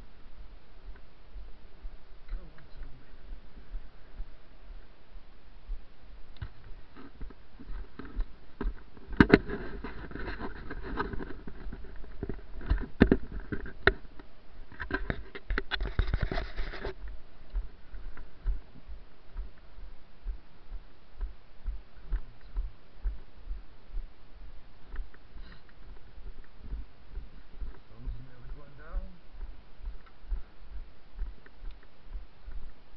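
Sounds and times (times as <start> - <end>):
footsteps on wet grass: 0.0 - 13.4, 15.4 - 32.9
sharp clicks and rustling: 6.3 - 18.6.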